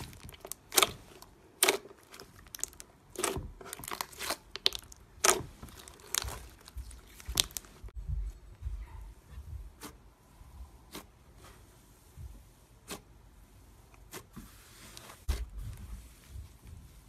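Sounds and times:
slime crackles and pops: 0:00.0 - 0:07.9
slime squelching: 0:00.0 - 0:08.0.

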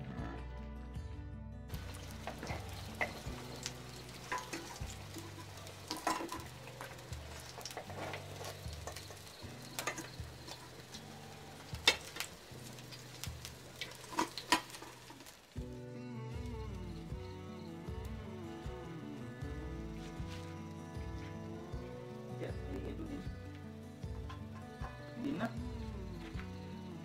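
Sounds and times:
fish sizzling in hot oil: 0:01.7 - 0:27.0
metal spatula scraping pan: 0:01.8 - 0:11.0.

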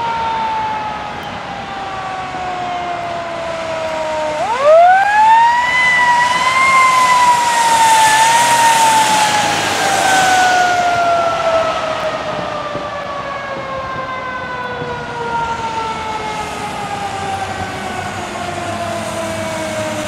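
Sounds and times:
fire engine siren: 0:00.0 - 0:20.0
car tyres hissing on wet road: 0:06.9 - 0:12.2.

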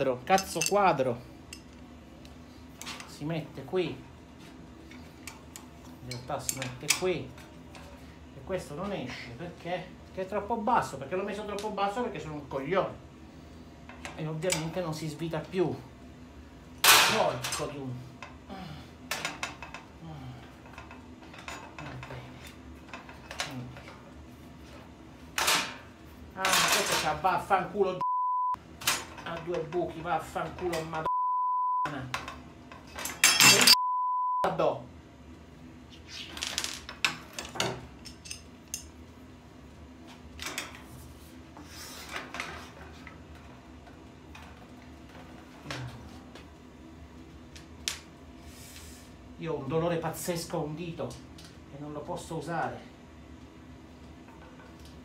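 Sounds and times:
metal cart parts clinking: 0:32.9 - 0:33.8.

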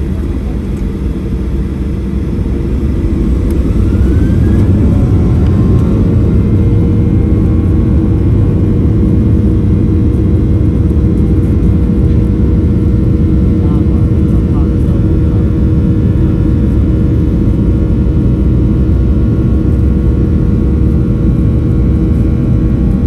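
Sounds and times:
jet engines spooling up: 0:00.7 - 0:10.5.

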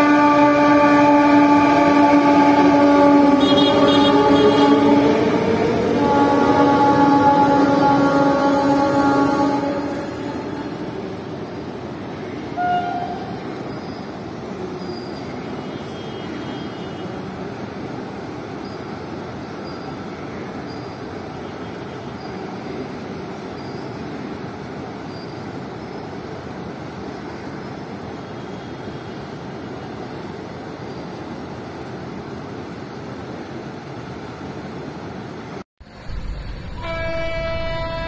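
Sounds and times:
train wheels rumbling on rails: 0:00.0 - 0:38.0
loud high tone: 0:35.9 - 0:38.0.

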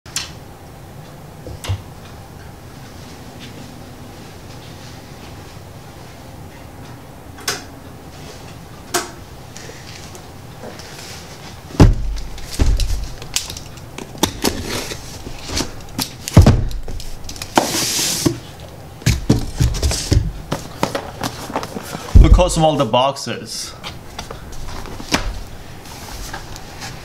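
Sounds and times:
cardboard and paper rustling: 0:10.7 - 0:22.4, 0:24.1 - 0:27.0
cardboard box thumps: 0:11.8 - 0:13.1.

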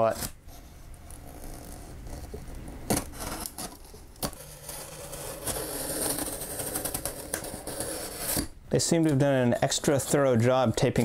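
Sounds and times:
knife rasping through tape: 0:00.0 - 0:08.5.

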